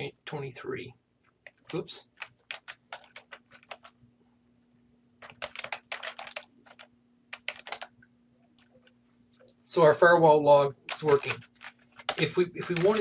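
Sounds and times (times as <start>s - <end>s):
keyboard typing: 1.2s - 4.0s, 5.2s - 9.6s, 10.8s - 13.0s.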